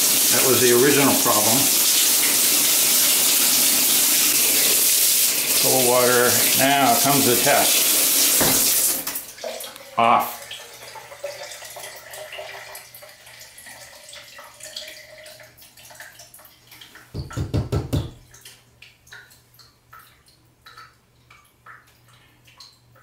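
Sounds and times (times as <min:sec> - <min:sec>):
water trickling from shower: 0:00.0 - 0:23.0
dull thumps: 0:08.4 - 0:08.8.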